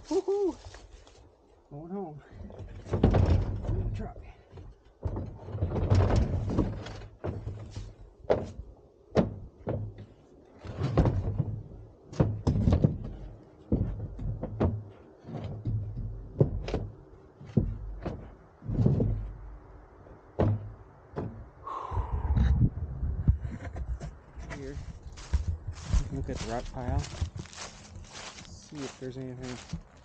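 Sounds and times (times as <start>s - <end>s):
stones thudding on truck bed: 2.6s - 4.0s, 5.0s - 10.1s, 10.7s - 16.9s, 17.5s - 19.3s, 20.4s - 21.4s.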